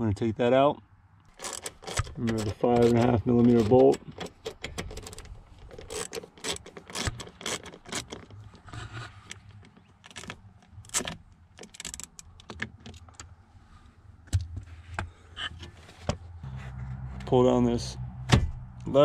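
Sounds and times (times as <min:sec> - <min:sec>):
ratchet clicking: 0:01.3 - 0:08.3.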